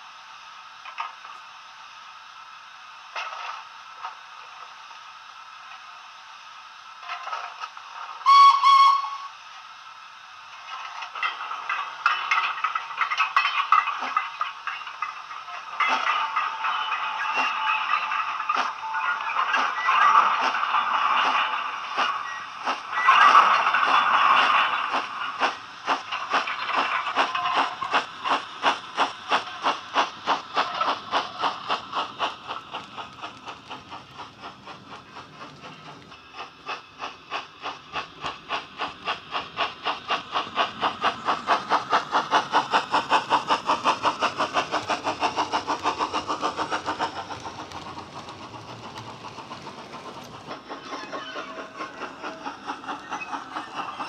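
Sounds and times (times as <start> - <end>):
steam hiss from model speaker: 0.0 - 54.0
steam locomotive chuffs: 0.0 - 54.0.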